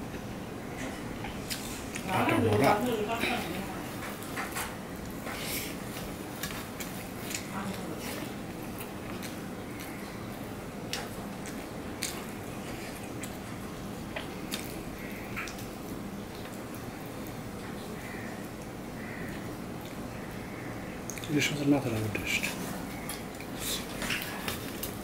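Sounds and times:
person chewing food: 0:04.0 - 0:07.5, 0:08.1 - 0:21.3, 0:22.6 - 0:25.0.

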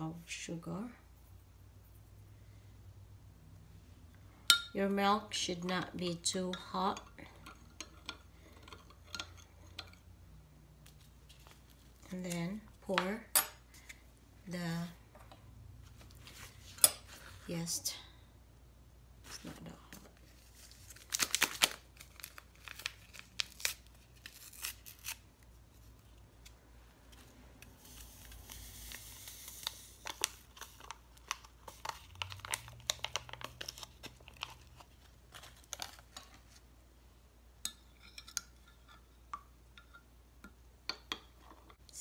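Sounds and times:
paper packet tearing and crinkling: 0:20.5 - 0:25.3, 0:27.8 - 0:36.0.

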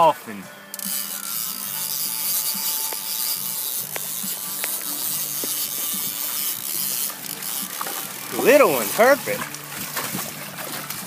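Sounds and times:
wind and water hiss: 0:00.0 - 0:11.0
fish splashing: 0:00.6 - 0:11.0
fishing reel whirring and ratcheting: 0:00.6 - 0:11.0
sharp clicks: 0:00.7 - 0:08.1.

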